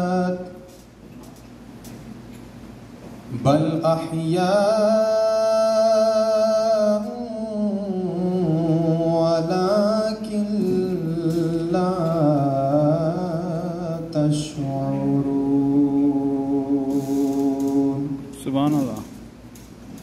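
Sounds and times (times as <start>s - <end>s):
man chanting melodically: 3.3s - 19.2s.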